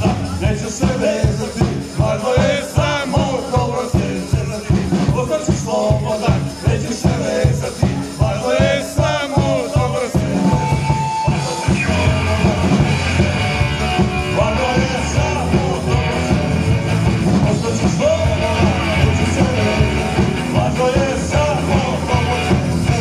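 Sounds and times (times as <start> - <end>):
bass guitar: 0.0 - 23.0
drum kit beat: 0.0 - 23.0
electric guitar: 9.0 - 23.0.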